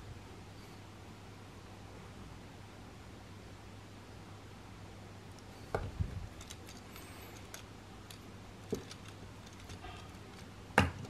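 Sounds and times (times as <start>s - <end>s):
faint steady hum: 0.0s - 11.0s
plastic parts clicking: 5.8s - 11.0s.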